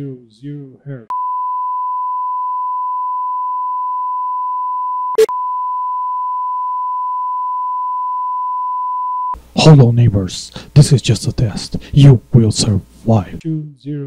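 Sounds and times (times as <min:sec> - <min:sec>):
sine test tone: 0:01.1 - 0:09.4.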